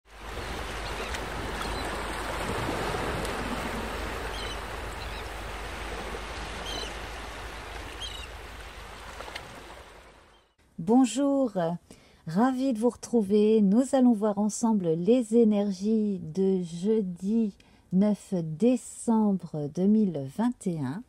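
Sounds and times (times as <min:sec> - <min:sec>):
sea waves washing on shore: 0:00.1 - 0:10.4.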